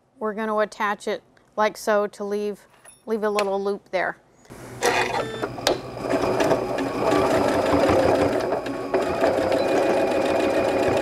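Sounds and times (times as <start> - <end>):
sewing machine stitching: 6.0 - 11.0.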